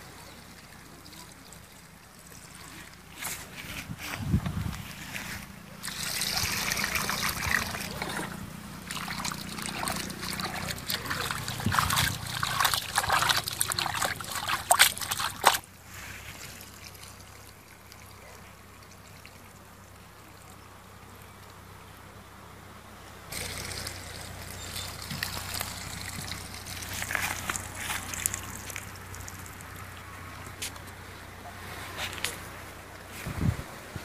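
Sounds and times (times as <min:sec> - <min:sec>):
wet squelching and splashing: 0:05.8 - 0:15.7, 0:23.3 - 0:29.9.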